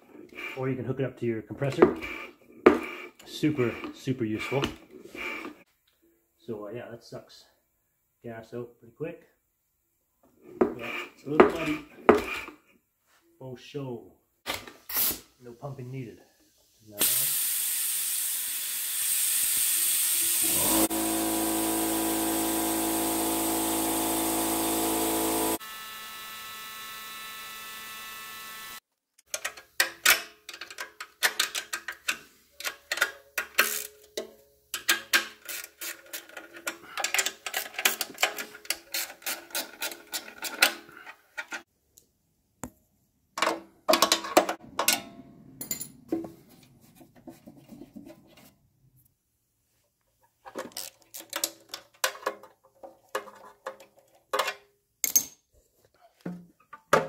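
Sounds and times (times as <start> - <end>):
tools clicking on metal cover: 29.3 - 40.8.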